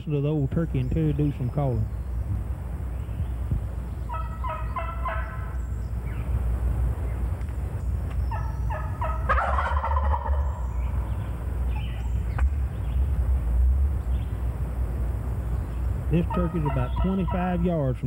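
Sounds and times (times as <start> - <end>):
turkey mouth call yelping: 4.1 - 5.5, 8.3 - 11.0, 16.2 - 17.6
turkey gobbling: 4.1 - 5.6, 8.3 - 12.2, 16.1 - 17.8.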